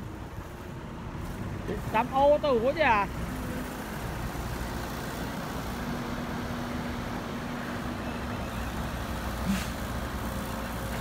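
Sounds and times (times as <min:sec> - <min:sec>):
heavy diesel machinery engine drone: 0:00.0 - 0:11.0.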